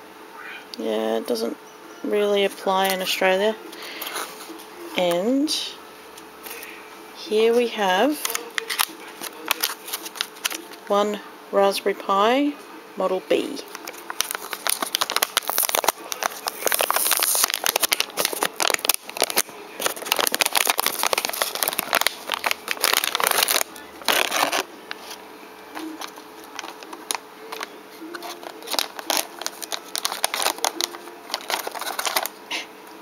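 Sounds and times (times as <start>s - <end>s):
plastic bag crinkling: 8.1s - 10.8s, 13.6s - 32.4s.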